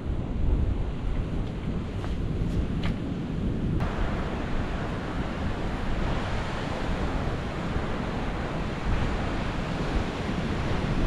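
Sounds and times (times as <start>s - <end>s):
wind on microphone: 0.0s - 11.0s
ocean surf breaking: 3.8s - 11.0s.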